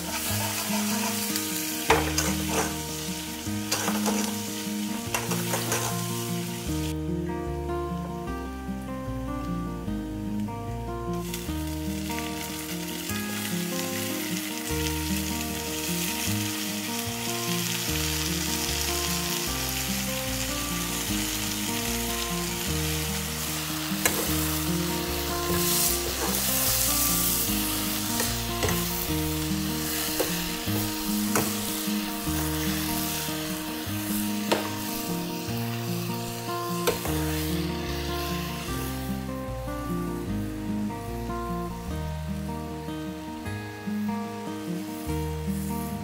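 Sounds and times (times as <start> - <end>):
vegetables sizzling in hot oil: 0.0 - 6.9, 11.2 - 46.0
ladle scraping and knocking pan: 1.9 - 2.8, 3.7 - 4.3, 5.1 - 6.0.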